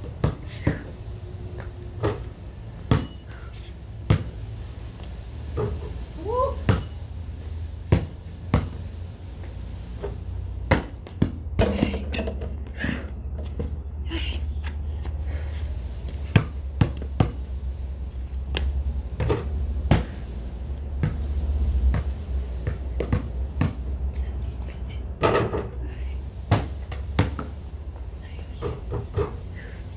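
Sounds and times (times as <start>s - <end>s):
basketball bouncing on concrete: 0.0s - 1.0s, 1.6s - 3.2s, 4.0s - 4.4s, 6.6s - 7.0s, 7.8s - 8.8s, 9.4s - 12.7s, 16.1s - 17.5s, 18.5s - 20.3s, 20.9s - 21.3s, 21.9s - 24.0s, 26.5s - 27.5s
steady low rumble: 0.0s - 29.9s.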